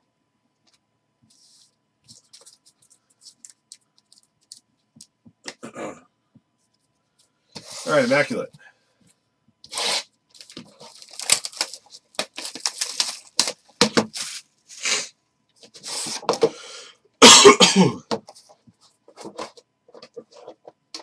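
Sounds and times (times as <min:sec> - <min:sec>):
plastic wrap crackling: 0:10.3 - 0:14.4.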